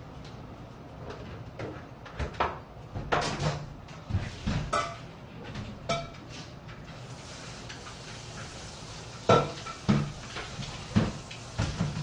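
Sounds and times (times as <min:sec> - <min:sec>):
dishes and utensils clattering: 0:04.4 - 0:06.4, 0:09.2 - 0:12.0.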